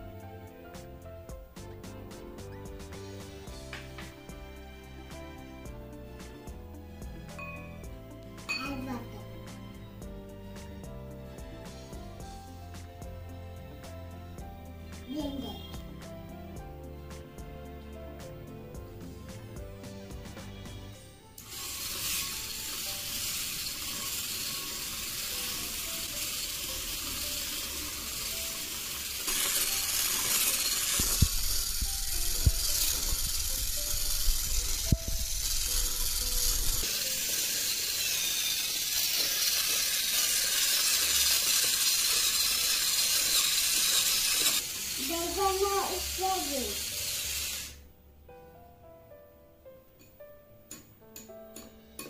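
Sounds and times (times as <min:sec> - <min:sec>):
faint background music: 0:00.0 - 0:52.0
wire whisk whipping in glass bowl: 0:21.6 - 0:47.7.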